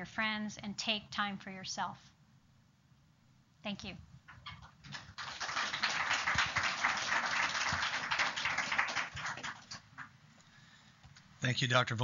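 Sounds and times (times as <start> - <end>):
audience applauding: 4.8 - 10.1.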